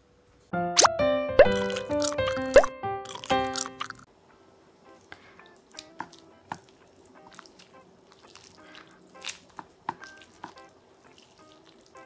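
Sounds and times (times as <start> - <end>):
chopsticks stirring noodles in broth: 4.9 - 12.0.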